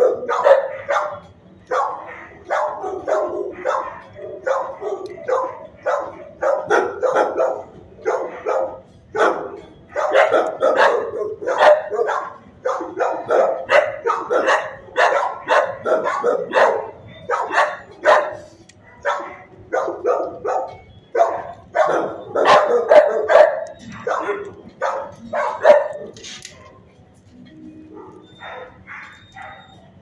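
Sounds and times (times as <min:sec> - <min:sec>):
dogs barking: 0:00.0 - 0:30.0.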